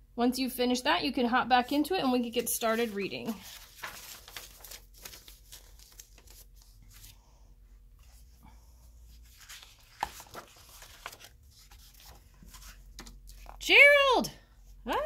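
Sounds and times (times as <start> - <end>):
soft paper rustles: 2.0 - 7.4, 8.0 - 13.6
book pages turning: 2.2 - 7.3, 9.0 - 13.6.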